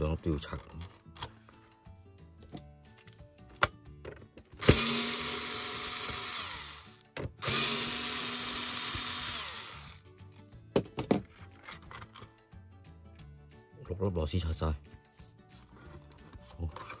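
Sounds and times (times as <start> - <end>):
cordless drill running: 4.6 - 10.0.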